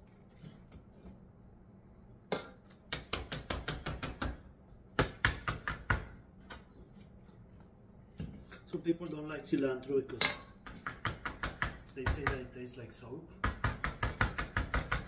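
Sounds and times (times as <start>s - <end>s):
spatula tapping metal bowl: 10.2s - 12.5s.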